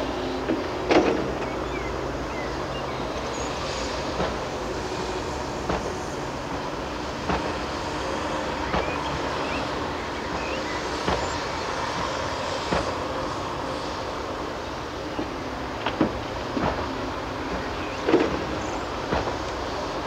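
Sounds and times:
excavator diesel engine running: 0.0s - 20.0s.

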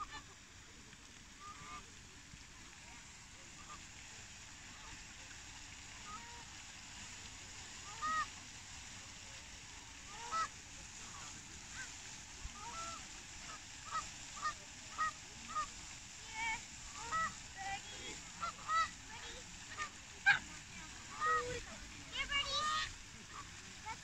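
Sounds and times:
geese honking: 1.4s - 1.8s, 7.8s - 8.4s, 10.0s - 24.0s.

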